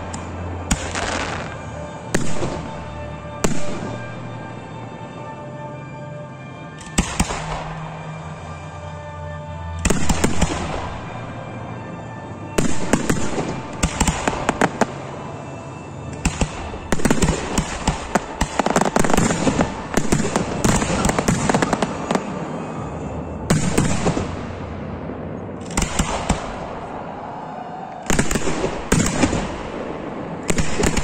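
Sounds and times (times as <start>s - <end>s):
fireworks bangs and crackle: 0.0s - 4.5s, 9.8s - 11.5s, 12.5s - 27.2s, 27.9s - 31.0s.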